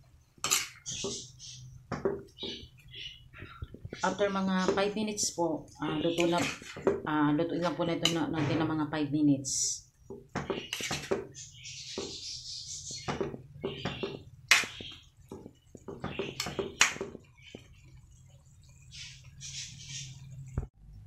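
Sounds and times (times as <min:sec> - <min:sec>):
spatula scraping wok: 0:00.4 - 0:01.6, 0:02.3 - 0:08.9, 0:09.6 - 0:17.8.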